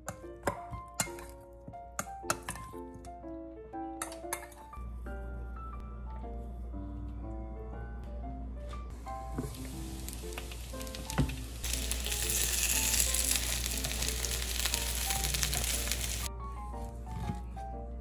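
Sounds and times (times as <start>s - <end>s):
dumplings sizzling in oil: 9.3s - 16.3s.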